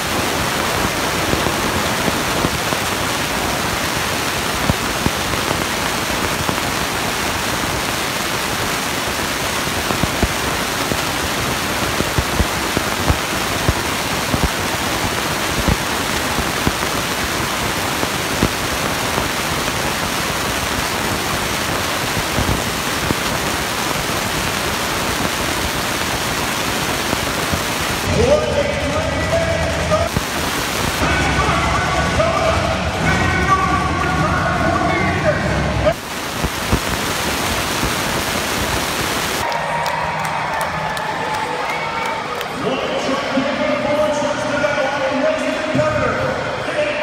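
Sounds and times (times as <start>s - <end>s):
monster truck engine running hard: 28.0s - 30.2s, 31.0s - 36.0s.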